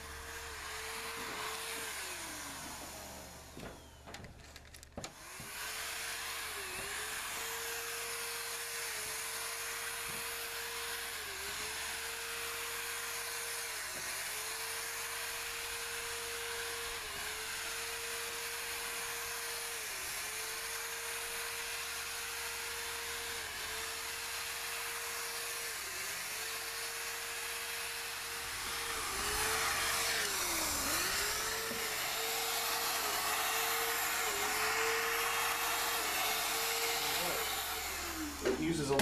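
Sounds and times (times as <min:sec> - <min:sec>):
paint sprayer hissing and whining: 0:00.0 - 0:39.0.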